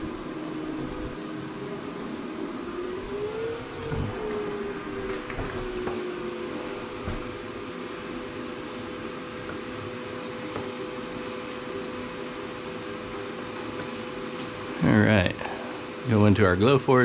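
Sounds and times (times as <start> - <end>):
motor tone rising and falling: 0.0 - 7.8
machine hum: 0.0 - 17.0.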